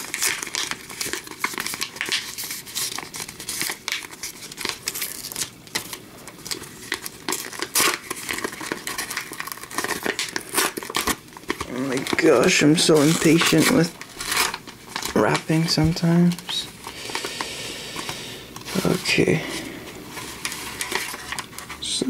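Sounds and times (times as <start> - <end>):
paper envelope tearing: 0.0 - 17.4.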